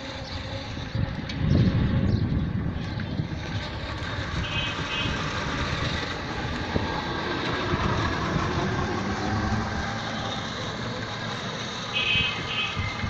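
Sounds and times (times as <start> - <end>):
vehicle ride rumble and rattles: 0.0 - 13.0.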